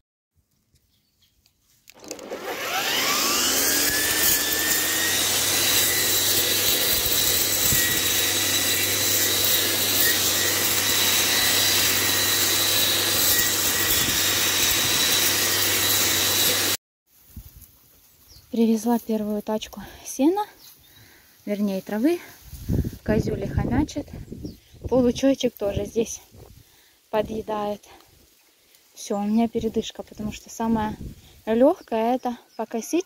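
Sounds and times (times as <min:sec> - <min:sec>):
grass trimmer running: 0:01.9 - 0:16.8.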